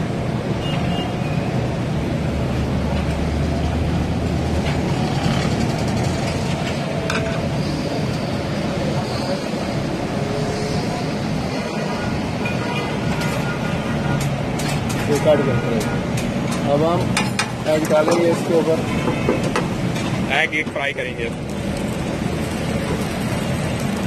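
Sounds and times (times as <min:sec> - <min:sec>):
commercial kitchen rumble: 0:01.7 - 0:24.0.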